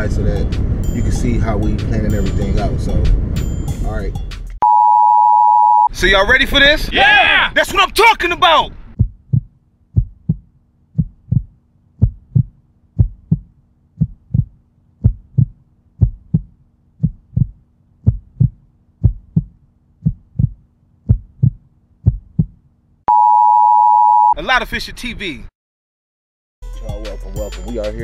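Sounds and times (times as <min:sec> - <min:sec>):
heartbeat thumps: 0:08.9 - 0:22.6.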